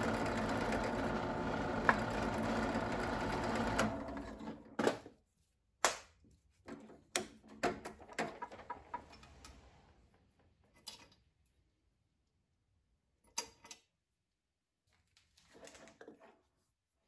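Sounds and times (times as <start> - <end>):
metal clicks and knocks: 6.7 - 9.6.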